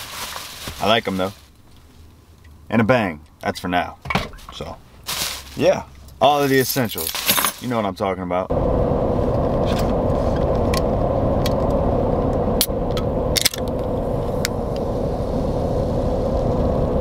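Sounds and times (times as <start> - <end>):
vehicle cabin hum: 8.5 - 17.0.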